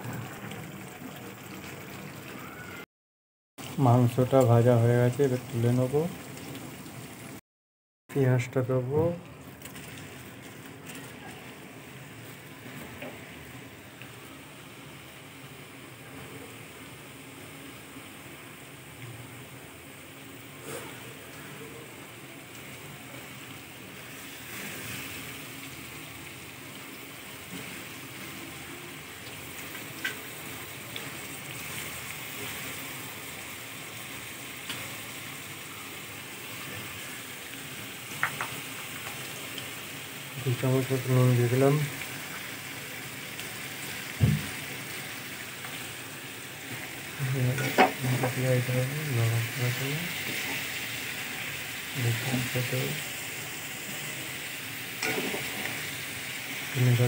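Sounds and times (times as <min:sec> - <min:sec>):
onions sizzling in hot oil: 0:00.0 - 0:02.8, 0:03.6 - 0:07.4, 0:08.2 - 0:57.0
knock: 0:44.2 - 0:44.5.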